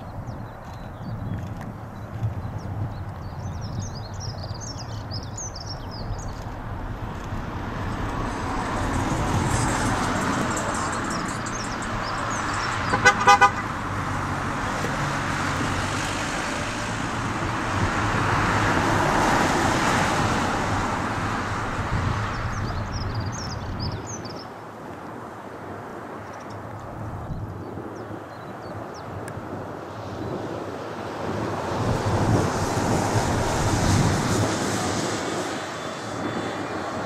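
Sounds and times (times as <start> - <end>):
small birds chirping: 0.0 - 6.7, 10.7 - 13.0, 22.3 - 24.5
distant jet engines rushing: 0.0 - 37.0
quick horn toots: 12.9 - 13.7.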